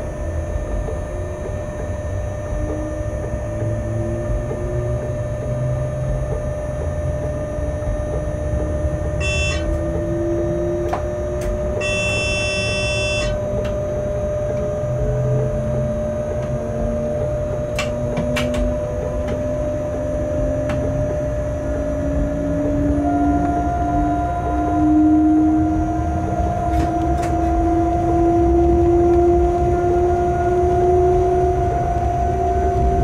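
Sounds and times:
locomotive running rumble: 0:00.0 - 0:33.0
motor whine rising in pitch: 0:00.0 - 0:33.0
steady hum: 0:00.0 - 0:33.0
short electronic beeps: 0:09.2 - 0:09.8, 0:11.8 - 0:13.4.

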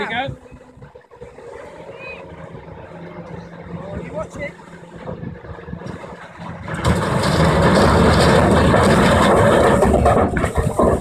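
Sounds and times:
rocks crashing and splashing into water: 0:06.4 - 0:11.0.

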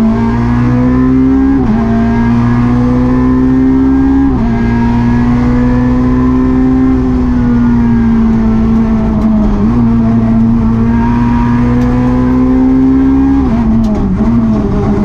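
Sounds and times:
car engine revving high: 0:00.0 - 0:15.0.

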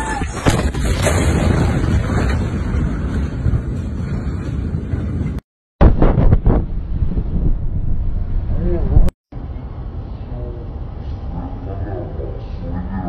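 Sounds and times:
explosion bang: 0:00.2 - 0:09.1
low rumble: 0:00.5 - 0:13.0.

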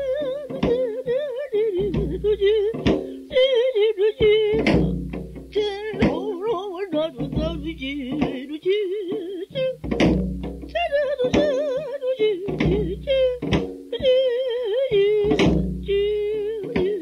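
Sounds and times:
person singing with vibrato: 0:00.0 - 0:10.1, 0:10.7 - 0:17.0
sharp drum strokes: 0:01.8 - 0:03.5, 0:04.2 - 0:08.6, 0:09.6 - 0:14.2, 0:15.2 - 0:17.0.

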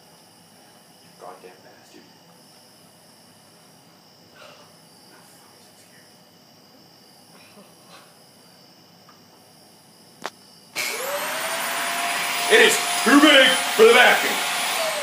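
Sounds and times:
vacuum cleaner running: 0:10.8 - 0:15.0.

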